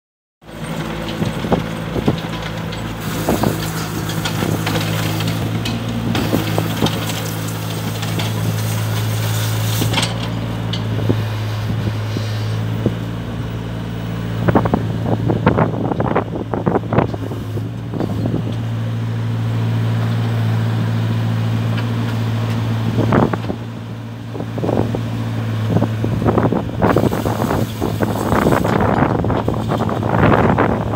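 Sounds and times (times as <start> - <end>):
clanks and knocks of tracks: 0.4 - 10.9
excavator diesel engine running: 0.4 - 30.9.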